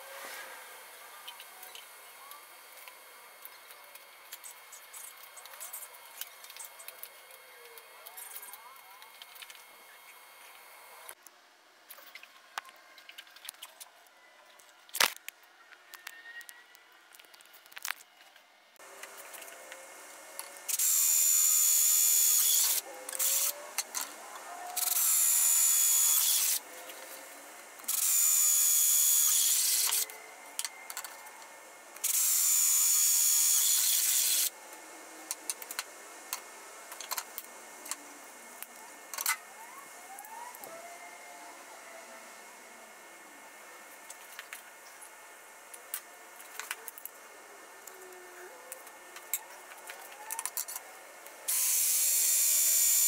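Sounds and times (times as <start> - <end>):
power drill whining: 24.7 - 26.6, 27.8 - 30.2, 32.0 - 34.5.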